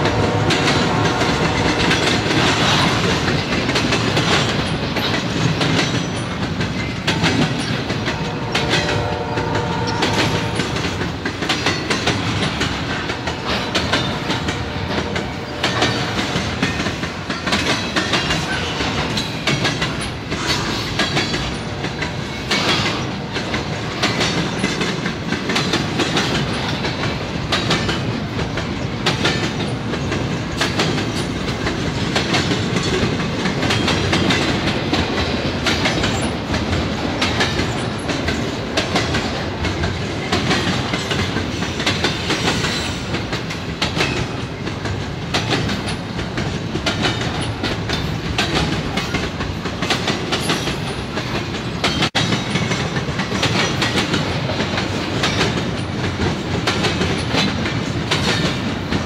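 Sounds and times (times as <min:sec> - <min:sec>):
train rumbling past: 0:00.0 - 0:59.0
wheels clacking over rail joints: 0:00.0 - 0:59.0.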